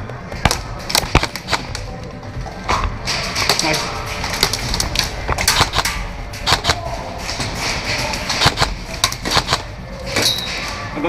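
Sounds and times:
airsoft guns firing: 0.4 - 1.9, 3.4 - 9.8.

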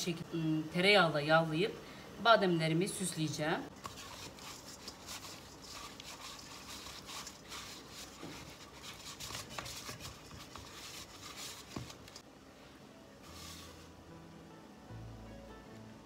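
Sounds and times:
hand rubbing inside metal bowl: 3.8 - 12.2, 13.2 - 14.0.

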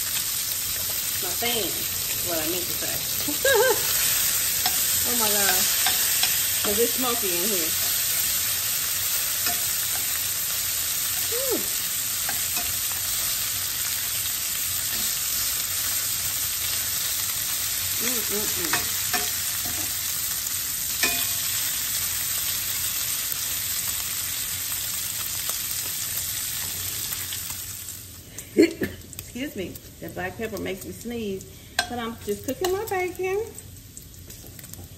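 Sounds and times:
bacon sizzling in a pan: 0.0 - 34.9
metal tongs clicking on pan: 4.5 - 8.1, 9.4 - 10.2, 12.2 - 13.0, 18.6 - 19.9, 21.0 - 21.4.

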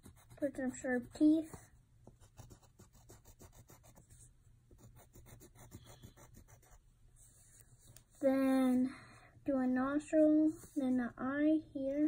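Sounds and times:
pencil scratching on paper: 0.0 - 8.2.

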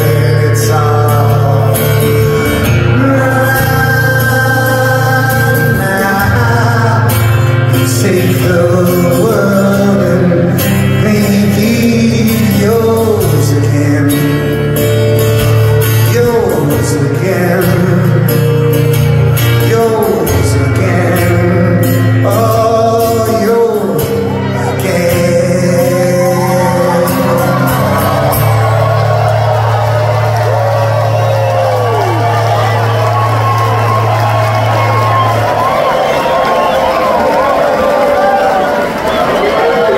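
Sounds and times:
man singing: 0.0 - 29.0
acoustic guitar: 0.0 - 39.9
live rock band: 0.0 - 39.9.

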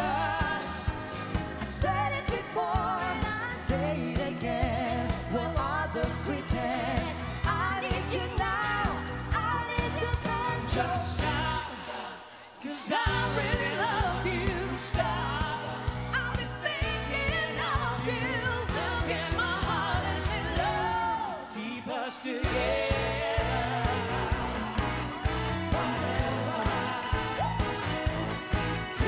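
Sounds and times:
live pop band: 0.0 - 29.0
person singing: 0.0 - 29.0.

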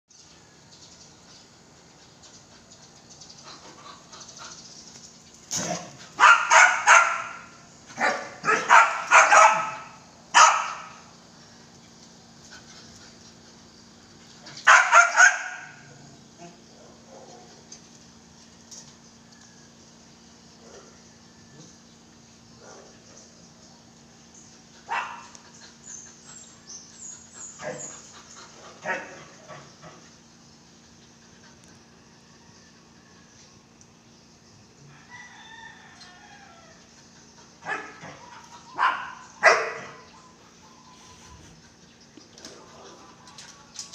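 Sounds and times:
dog barking: 6.2 - 10.9, 14.7 - 15.8, 24.9 - 25.4, 37.6 - 38.2, 38.8 - 40.0.

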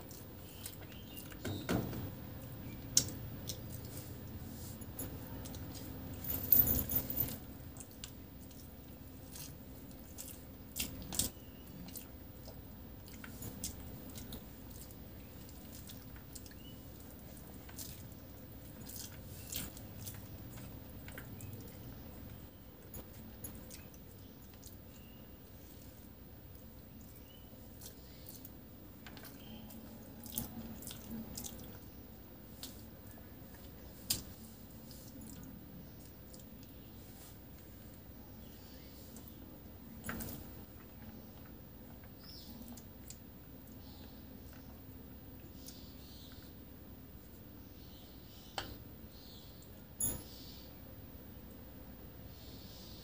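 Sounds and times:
fingers mixing rice and curry: 0.0 - 6.3, 7.4 - 49.8
chewing with wet mouth clicks: 2.6 - 4.0, 7.7 - 25.2, 26.5 - 31.9, 40.8 - 44.9
wet squishing: 7.8 - 22.3, 22.9 - 38.1.

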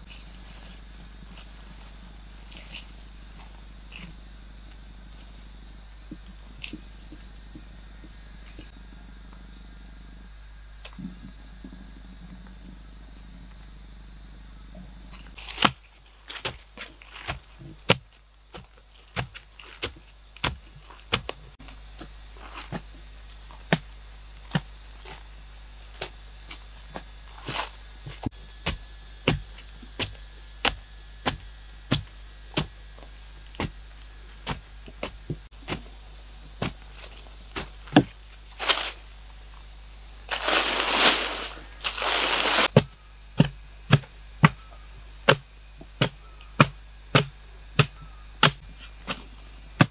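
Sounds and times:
wooden pole stabbing into soil: 15.4 - 21.4
scraping sounds: 40.3 - 42.7.

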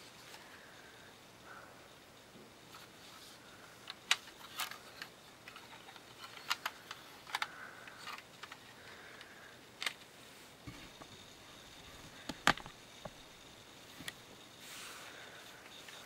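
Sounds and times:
plastic toy parts clicking: 3.8 - 10.1.

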